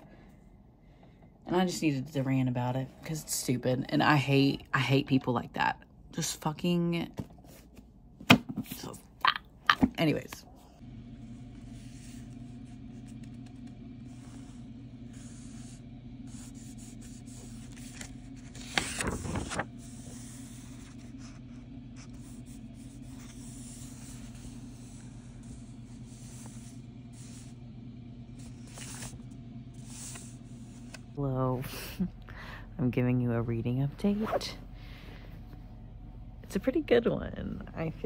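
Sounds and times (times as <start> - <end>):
low hum with faint hiss: 0.0 - 38.0
paper pages rustling: 16.7 - 21.5, 28.4 - 29.3.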